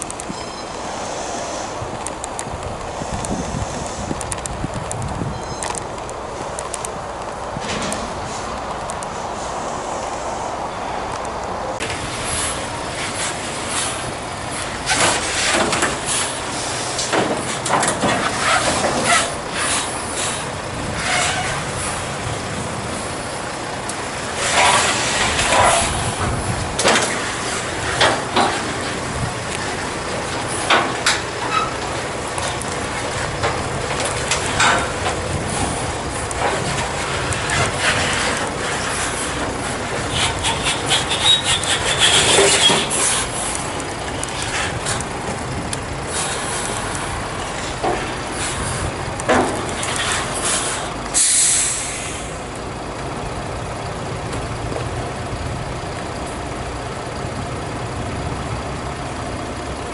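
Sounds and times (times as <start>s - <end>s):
engine running: 0.0s - 59.9s
metal clanks and knocks: 14.8s - 16.1s, 17.0s - 19.3s, 24.5s - 29.0s, 29.6s - 35.7s, 49.2s - 50.4s
air hiss: 50.4s - 52.4s.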